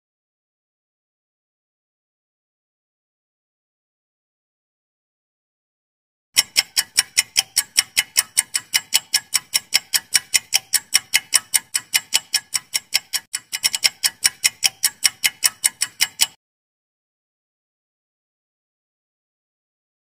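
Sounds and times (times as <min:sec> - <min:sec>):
countdown timer ticking: 0:06.4 - 0:16.4.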